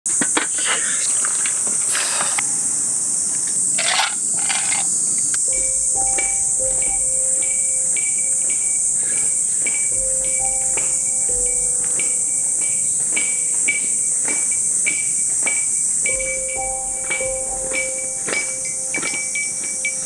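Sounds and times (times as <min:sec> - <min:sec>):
insects buzzing: 0:00.1 - 0:20.0
light music with ticking beat: 0:05.4 - 0:20.0.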